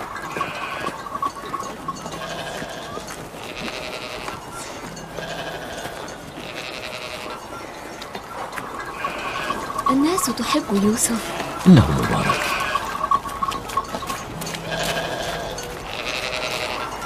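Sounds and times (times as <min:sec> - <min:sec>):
livestock bleating: 0:05.2 - 0:07.4.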